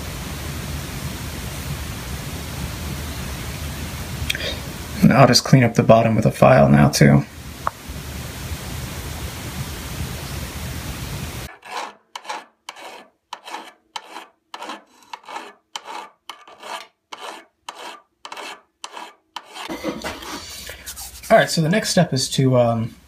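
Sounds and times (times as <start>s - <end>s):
steady hiss: 0.0s - 11.5s, 19.8s - 23.0s
file strokes on steel bar: 11.5s - 21.5s.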